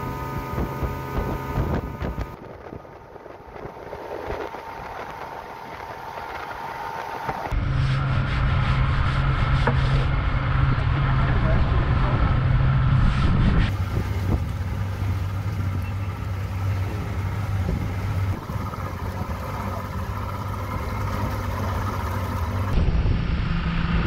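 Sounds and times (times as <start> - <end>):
wake water rushing: 0.0 - 7.5, 13.7 - 22.8
outboard engine running: 0.0 - 7.6, 13.7 - 23.3
wind on microphone: 0.1 - 15.0, 16.8 - 21.9.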